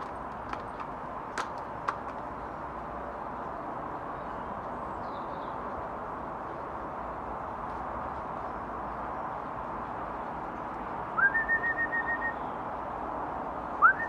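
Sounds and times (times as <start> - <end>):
steady background noise: 0.0 - 14.0
person whistling: 11.2 - 12.4.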